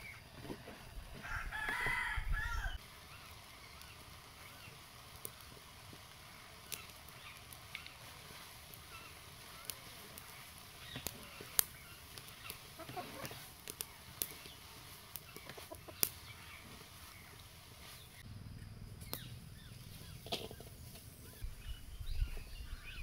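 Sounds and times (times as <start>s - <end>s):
wooden spatula stirring greens: 0.0s - 2.2s, 2.8s - 18.2s, 19.6s - 21.4s
low outdoor hiss: 0.0s - 23.0s
chickens clucking: 8.9s - 18.2s.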